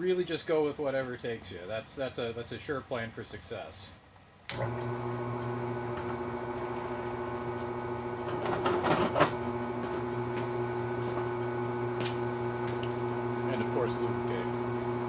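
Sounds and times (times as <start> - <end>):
drill press motor humming: 4.5 - 15.0.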